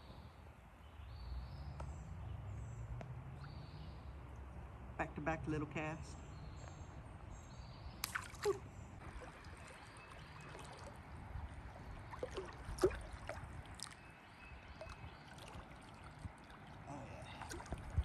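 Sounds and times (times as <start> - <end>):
river water trickling: 0.8 - 4.9, 6.3 - 18.0
water splashes: 8.0 - 18.0.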